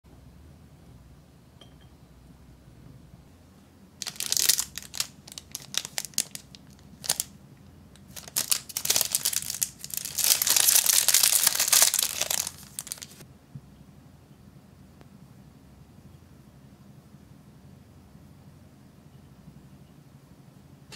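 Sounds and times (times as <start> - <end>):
plastic packet crinkling: 4.0 - 7.3, 8.0 - 13.2.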